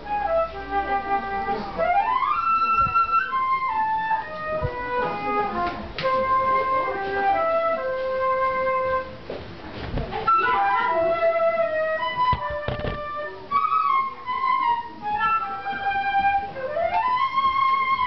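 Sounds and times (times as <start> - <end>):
flute-like melody: 0.0 - 9.4, 10.2 - 18.0
soft thumps: 12.1 - 13.2.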